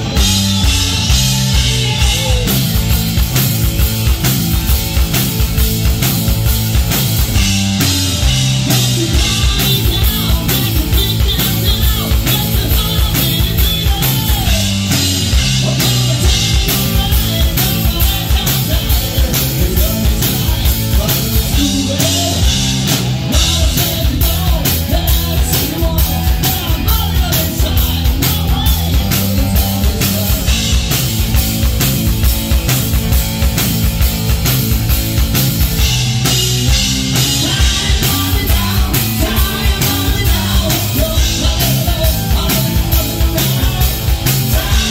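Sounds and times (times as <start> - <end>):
man singing: 0.0 - 3.1, 8.6 - 31.0, 37.1 - 44.9
drum kit: 0.0 - 44.9
electric bass guitar: 0.0 - 44.9.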